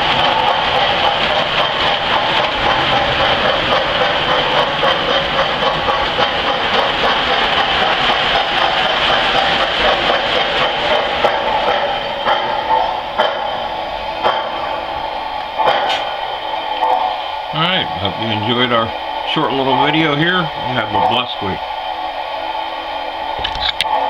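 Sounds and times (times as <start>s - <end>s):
toy train wheels rattling on rails: 0.0s - 13.6s.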